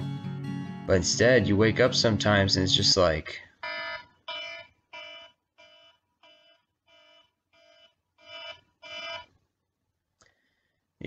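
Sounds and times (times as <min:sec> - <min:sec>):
smartphone alarm beeping: 0:03.6 - 0:09.3.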